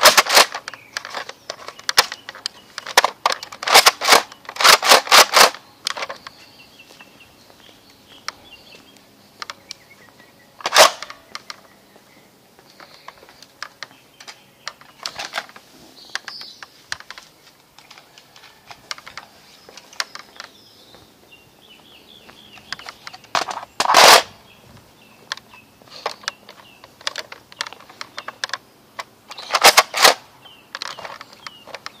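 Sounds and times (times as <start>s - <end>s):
handling clicks: 0.0s - 6.4s, 10.6s - 11.7s, 12.8s - 20.6s, 25.2s - 32.0s.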